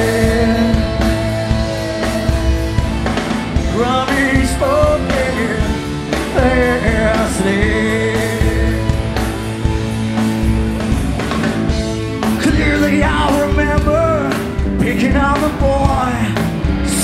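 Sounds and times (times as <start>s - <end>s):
singer holding wordless sliding notes: 0.0s - 10.3s
live rock band playing: 0.0s - 17.0s.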